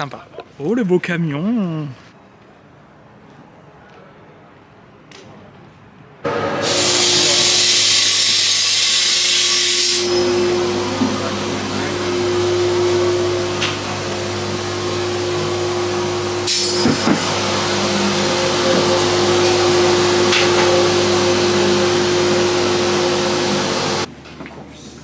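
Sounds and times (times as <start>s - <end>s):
machine whirring and humming: 6.2s - 24.1s.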